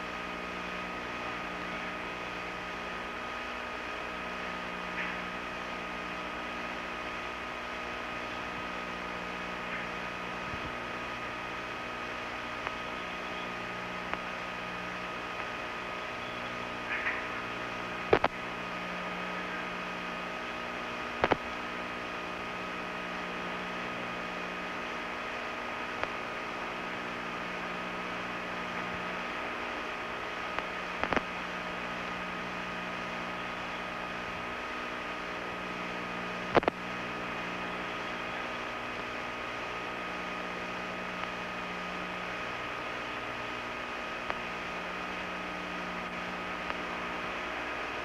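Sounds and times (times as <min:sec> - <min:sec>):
ventilation fan hum: 0:00.0 - 0:48.0
sharp clicks: 0:18.1 - 0:18.4, 0:21.2 - 0:21.5, 0:30.6 - 0:31.3.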